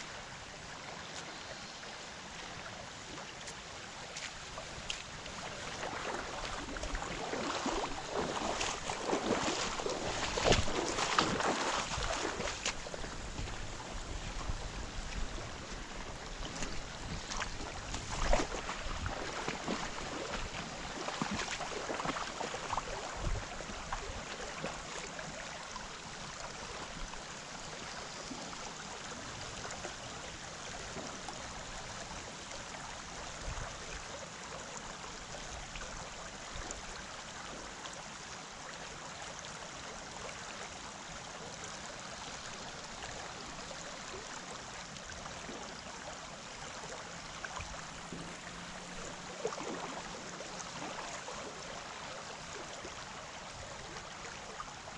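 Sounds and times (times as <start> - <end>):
creek water flowing: 0.0 - 54.9.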